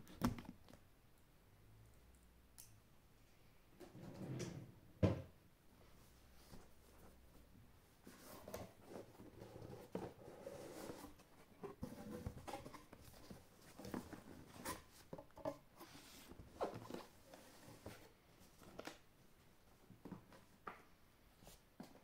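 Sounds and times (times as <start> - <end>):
cardboard and paper rustling: 8.0 - 19.0.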